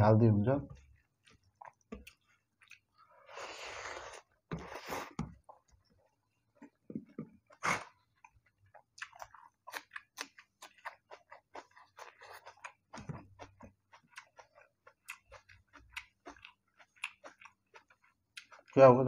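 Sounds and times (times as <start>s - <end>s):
wet chewing and lip smacks: 0.8s - 3.0s, 7.4s - 18.8s.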